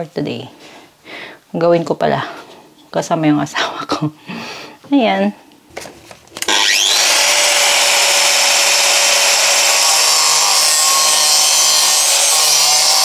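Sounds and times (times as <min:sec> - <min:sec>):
angle grinder cutting steel: 0:06.4 - 0:13.0.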